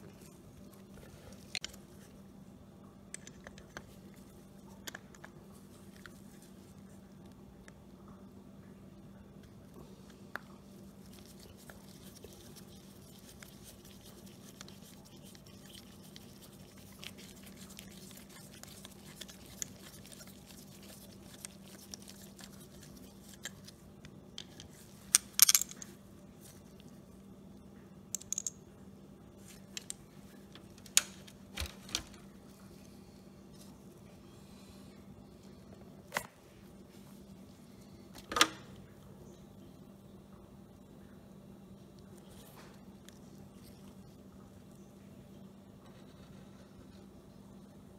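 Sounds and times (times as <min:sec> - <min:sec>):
faint steady hum: 0:00.0 - 0:47.9
small metal parts set down: 0:25.1 - 0:25.9.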